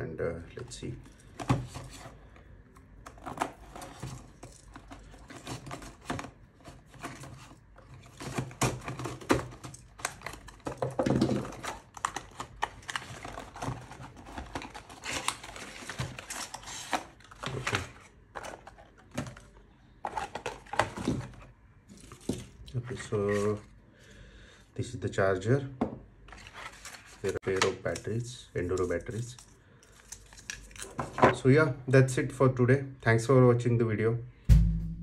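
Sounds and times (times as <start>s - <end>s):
packaging rustling: 3.1s - 22.6s, 26.3s - 27.8s.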